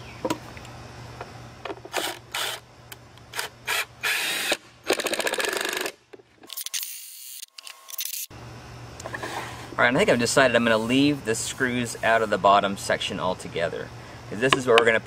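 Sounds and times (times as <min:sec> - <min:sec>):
drill driving screw into wood: 0:01.9 - 0:02.6, 0:03.3 - 0:08.3.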